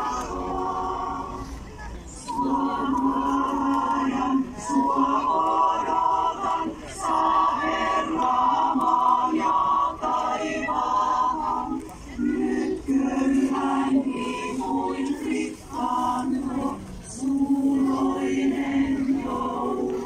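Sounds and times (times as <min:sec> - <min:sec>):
women's choir singing: 0:00.0 - 0:20.0.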